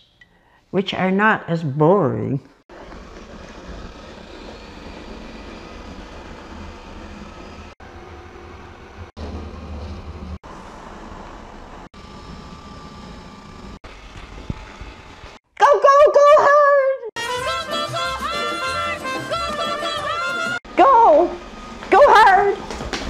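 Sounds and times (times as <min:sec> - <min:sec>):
robot vacuum cleaner whirring: 0:02.7 - 0:15.4.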